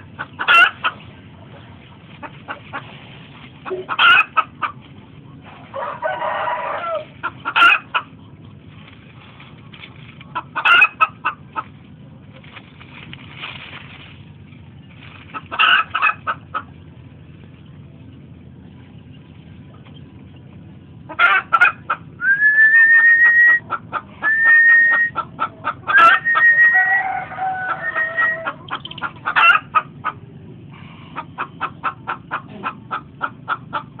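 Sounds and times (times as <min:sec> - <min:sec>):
chickens clucking: 0:00.0 - 0:34.0
rising whistled calls: 0:22.2 - 0:25.2, 0:25.9 - 0:27.1.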